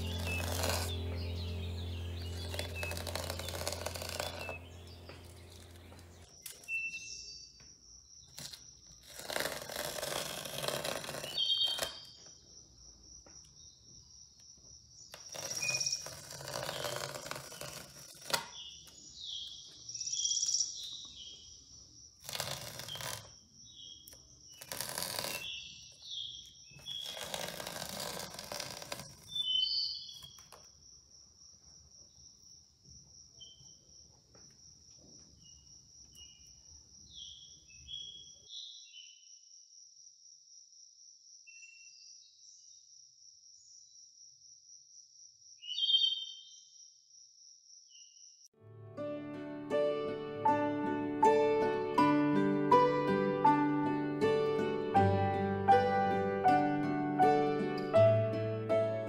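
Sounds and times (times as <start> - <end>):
masking tape ripping: 0.0 - 6.3, 8.4 - 12.1, 15.2 - 18.8, 22.2 - 23.4, 24.5 - 25.6, 26.8 - 29.5
bird-like chirps: 0.0 - 8.5, 18.5 - 21.9, 29.3 - 30.5, 45.6 - 46.7
cricket trill: 0.0 - 48.5.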